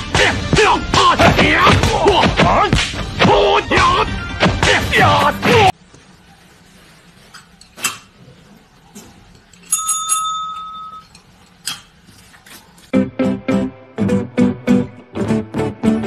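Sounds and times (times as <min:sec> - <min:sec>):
service bell ding: 0:09.7 - 0:11.2.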